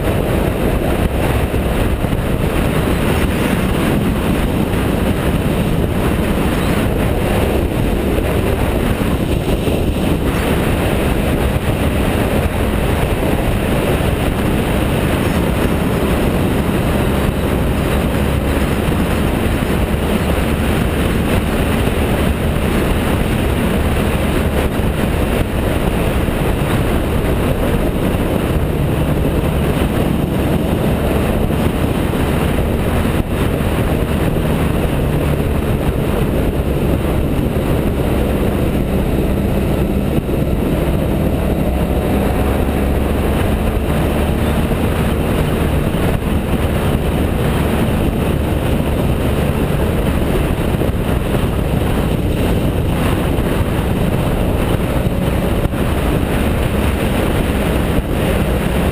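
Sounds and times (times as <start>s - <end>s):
motorcycle engine cruising: 0.0s - 58.9s
road noise: 0.0s - 58.9s
wind noise: 0.0s - 58.9s.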